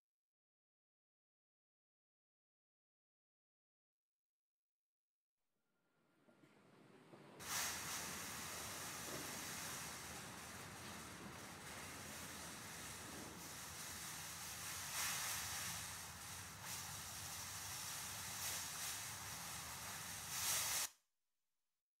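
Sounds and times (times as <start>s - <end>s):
steady hiss: 6.3s - 20.9s.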